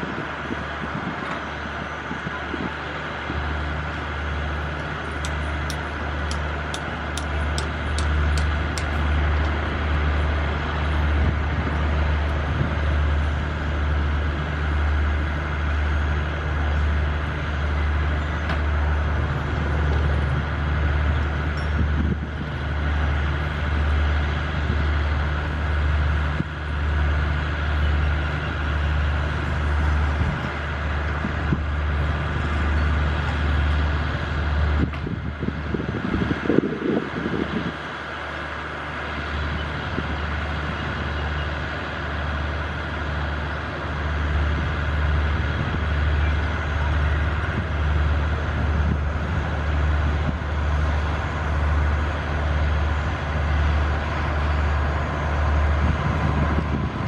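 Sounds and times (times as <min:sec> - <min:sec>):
locomotive engine drone: 0:00.0 - 0:57.0.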